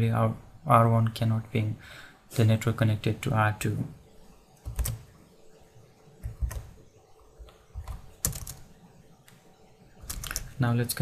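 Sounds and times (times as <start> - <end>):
computer keyboard key clicks: 10.0 - 10.5.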